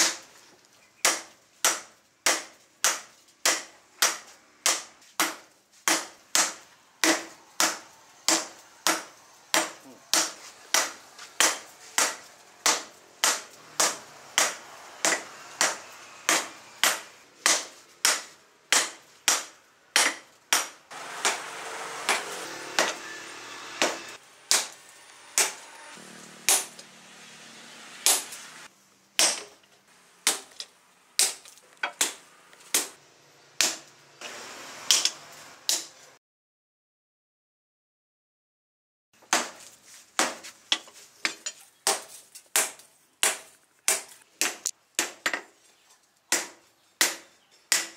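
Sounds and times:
hammer striking hot steel on anvil: 1.1 - 26.9, 28.0 - 28.4, 34.9 - 35.9, 46.3 - 47.9.

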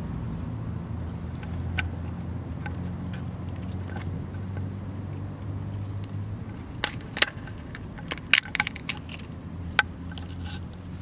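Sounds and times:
steady low hum: 0.0 - 11.0
sharp cracks and snaps: 0.2 - 11.0.

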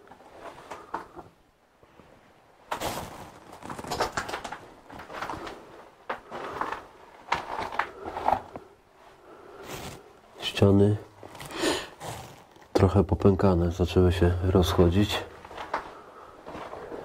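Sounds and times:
footsteps crunching on rubble: 2.7 - 8.7, 14.6 - 17.0.

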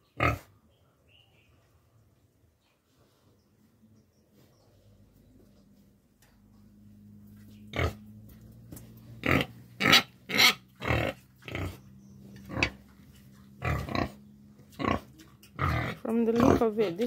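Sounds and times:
pigs grunting: 0.1 - 0.5, 7.6 - 8.2, 9.1 - 16.8.

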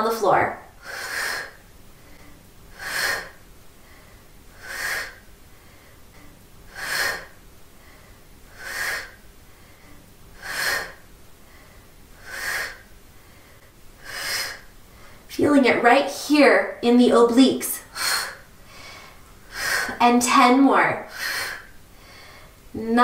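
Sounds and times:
woman breathing out forcefully: 0.8 - 1.6, 2.2 - 15.3, 17.9 - 20.0, 21.1 - 22.6.

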